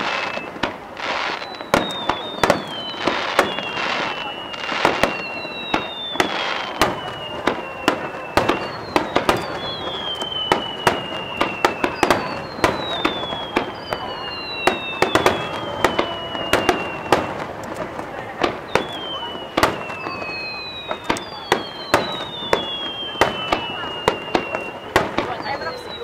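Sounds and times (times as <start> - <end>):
descending firework whistles: 0.0 - 26.0
firework bangs: 0.0 - 26.0
firework crackle: 0.0 - 26.0.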